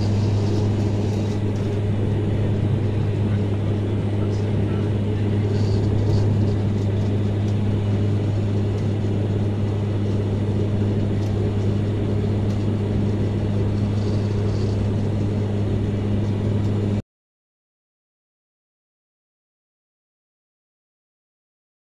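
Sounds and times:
propeller engine droning in cabin: 0.0 - 17.0.

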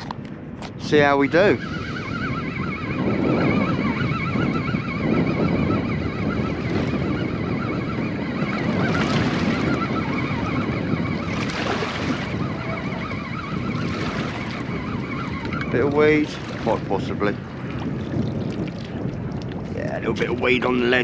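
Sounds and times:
water lapping against boat hull: 0.0 - 0.9, 8.0 - 21.0
wind buffeting microphone: 0.0 - 21.0.

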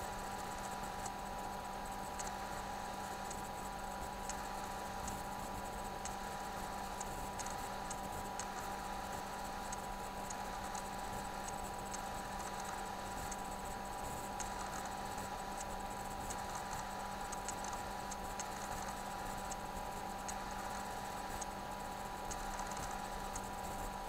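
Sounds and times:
electrical hum and hiss: 0.0 - 24.0
faint high ticks: 2.0 - 2.4, 3.2 - 5.2, 5.9 - 8.8, 9.4 - 21.6, 22.2 - 23.9.

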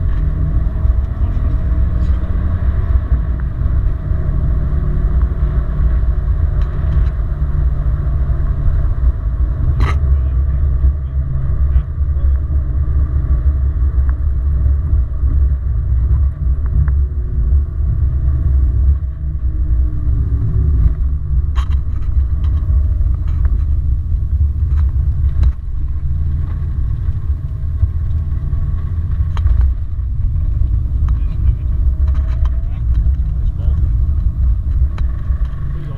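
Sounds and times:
engine and road noise rumble: 0.0 - 35.9
sharp clicks and knocks: 20.8 - 23.9, 24.6 - 25.7, 26.4 - 35.8.

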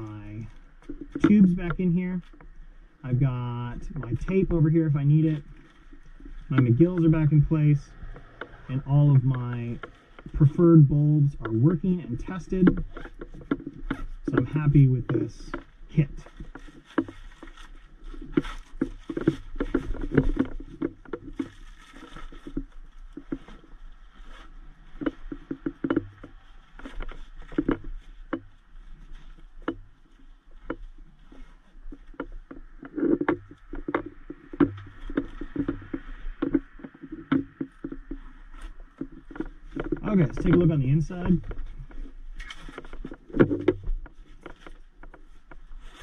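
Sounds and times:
sharp clicks and knocks: 0.0 - 46.0
nylon bag rustling: 12.8 - 46.0.

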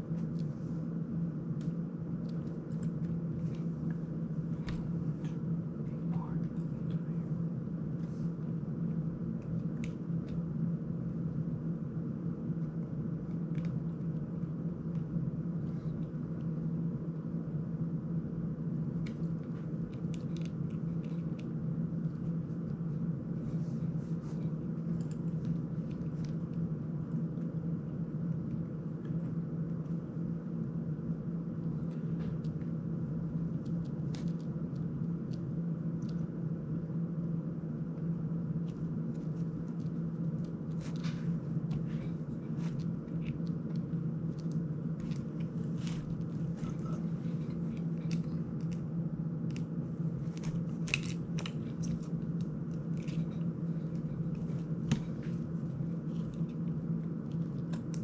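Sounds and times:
low room hum: 0.0 - 58.0.

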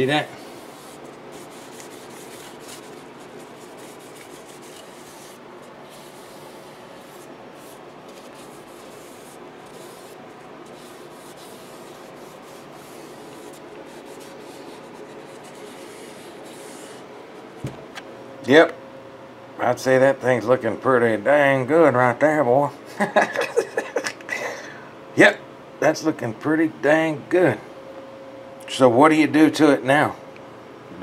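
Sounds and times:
rubbing on wooden guitar body: 0.4 - 17.1.

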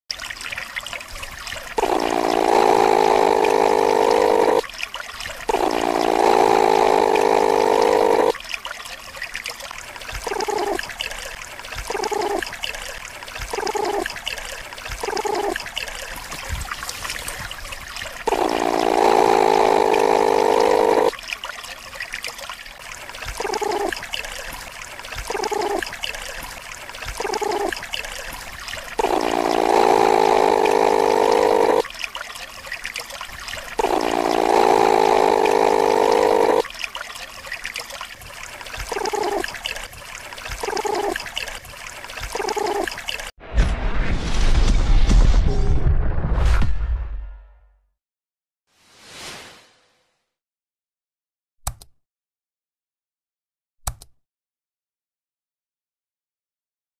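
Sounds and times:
platypus calls: 1.8 - 4.6, 5.5 - 8.4, 10.2 - 10.9, 11.9 - 12.4, 15.0 - 15.7, 18.2 - 21.2, 23.3 - 24.0, 25.2 - 26.0, 27.0 - 28.1, 28.8 - 32.0, 33.5 - 36.8, 38.8 - 41.6, 42.2 - 43.3.

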